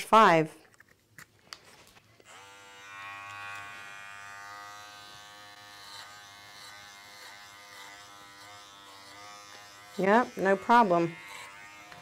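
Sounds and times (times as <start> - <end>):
dog clipper buzzing: 2.2 - 12.0.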